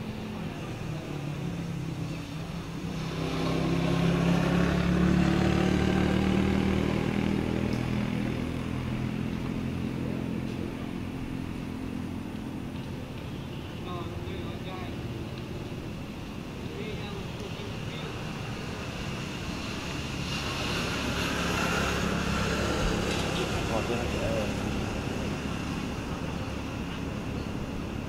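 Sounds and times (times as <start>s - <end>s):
vehicle engine passing by: 1.0s - 12.3s, 17.5s - 28.0s.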